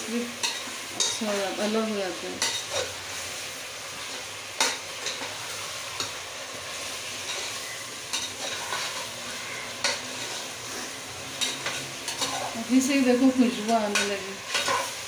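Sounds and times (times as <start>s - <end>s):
chicken sizzling in oil: 0.0s - 15.0s.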